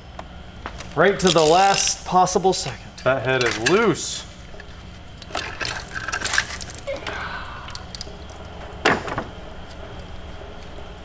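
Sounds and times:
coolant trickling and squishing: 0:00.8 - 0:11.0.

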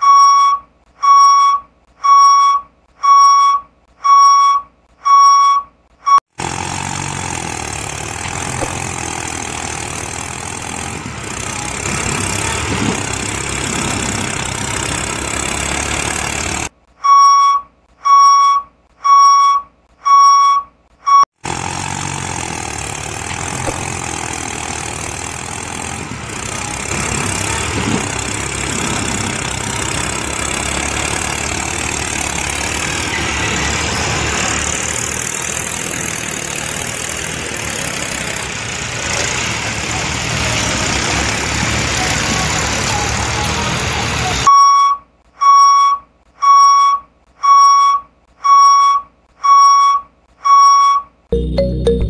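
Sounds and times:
electronic warning beeps: 0:00.0 - 0:06.2, 0:17.0 - 0:21.3, 0:44.5 - 0:52.0
engine running: 0:06.4 - 0:16.7, 0:21.4 - 0:44.5.

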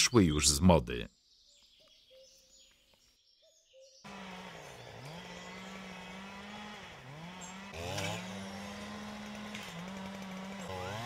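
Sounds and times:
chainsaw running at high speed: 0:04.1 - 0:11.0.

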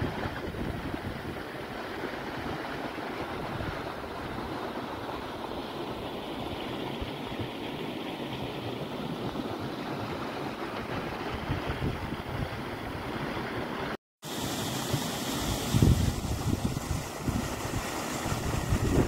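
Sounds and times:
wind buffeting microphone: 0:00.0 - 0:01.8, 0:10.7 - 0:13.4, 0:15.6 - 0:19.0.

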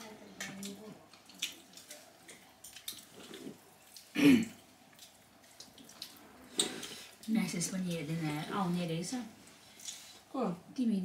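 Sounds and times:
small clicks and smacks of eating: 0:00.3 - 0:08.8, 0:09.7 - 0:10.1
throat clearing: 0:04.1 - 0:04.6.

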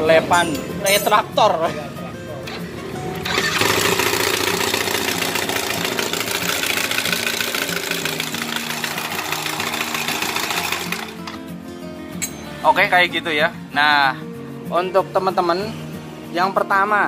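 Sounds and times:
scooter engine knocking clatter: 0:03.2 - 0:11.4.

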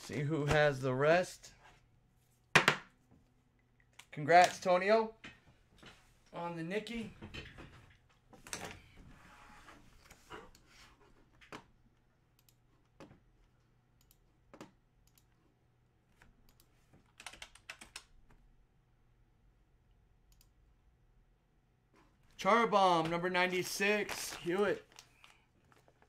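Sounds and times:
computer keyboard typing: 0:16.5 - 0:18.1.

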